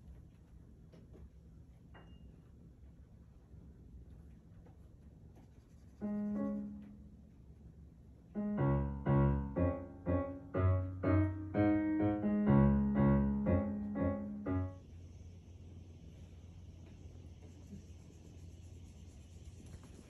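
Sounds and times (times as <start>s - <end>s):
piano playing: 6.0s - 7.2s, 8.4s - 14.8s.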